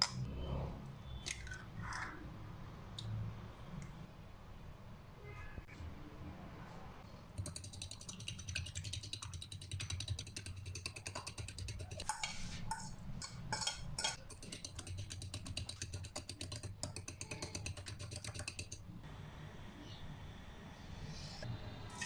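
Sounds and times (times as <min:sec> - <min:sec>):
spoon beating eggs in glass bowl: 0:07.4 - 0:18.8
spoon clinking and scraping glass: 0:11.9 - 0:14.8.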